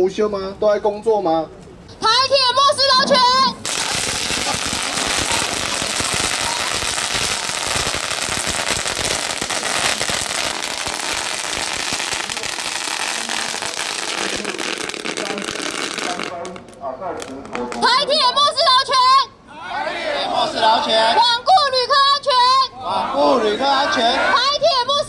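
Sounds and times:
firecrackers banging rapidly: 0:03.6 - 0:17.8.

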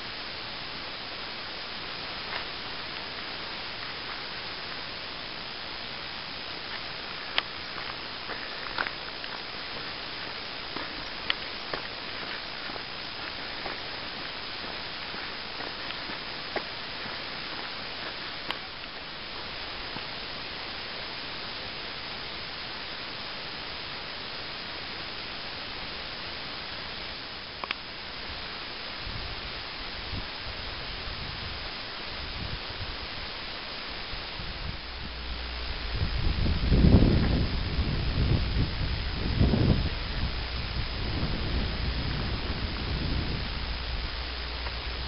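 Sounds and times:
steady hiss: 0:00.0 - 0:45.0.

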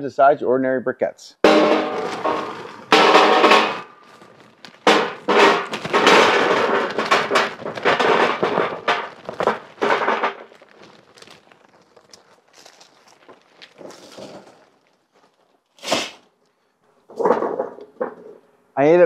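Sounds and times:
ringing metal hit: 0:01.4 - 0:03.9
charcoal clattering in metal basket: 0:01.4 - 0:16.3.

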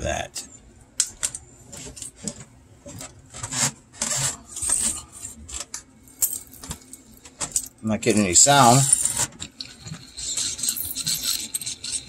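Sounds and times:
pull cord mechanism rasping and clicking: 0:08.5 - 0:12.0.

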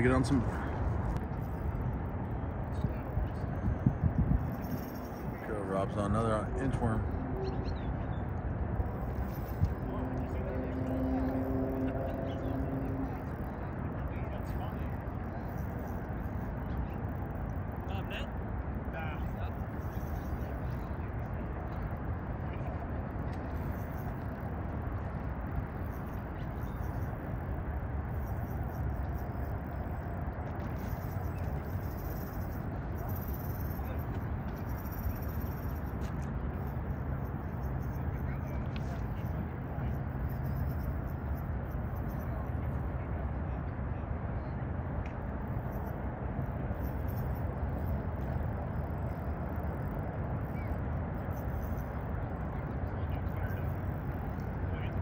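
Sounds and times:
wind buffeting microphone: 0:00.0 - 0:05.6
low rumbling outdoor background noise: 0:00.0 - 0:55.0.

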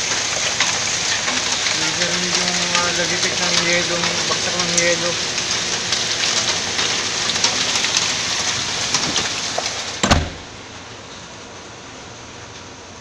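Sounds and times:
hail pelting deck and tarpaulin: 0:00.0 - 0:10.0
loud thump: 0:10.0 - 0:10.5.

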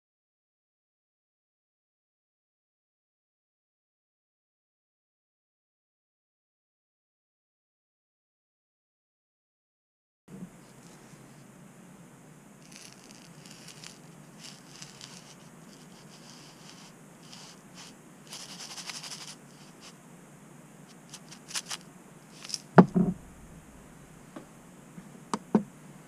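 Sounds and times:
gold flakes rattling in a vial: 0:12.6 - 0:19.9, 0:20.9 - 0:22.8
vial knocking on steel table: 0:22.8 - 0:23.2.

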